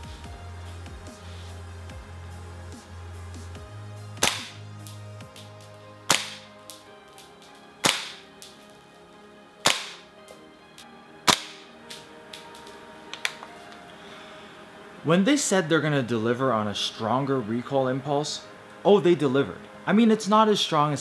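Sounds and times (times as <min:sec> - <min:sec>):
airsoft rifle shots: 0:04.2 - 0:04.6, 0:06.1 - 0:06.5, 0:07.8 - 0:08.3, 0:09.6 - 0:10.0, 0:11.3 - 0:11.7.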